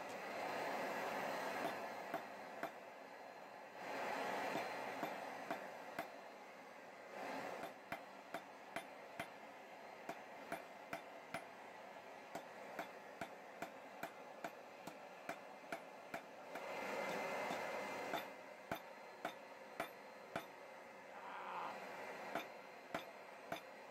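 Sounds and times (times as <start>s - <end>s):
hammer striking steel on anvil: 17.5s - 20.6s, 22.4s - 23.7s.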